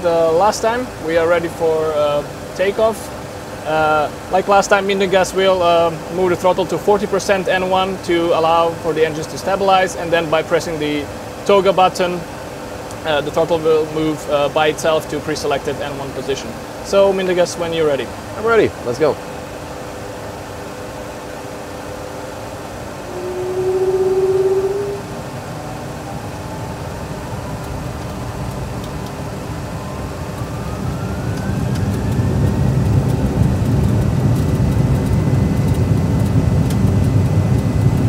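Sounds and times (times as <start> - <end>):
jet engines spooling up: 22.5 - 27.7
low rumble of takeoff roll: 22.6 - 38.0
short loud hum: 22.8 - 25.7.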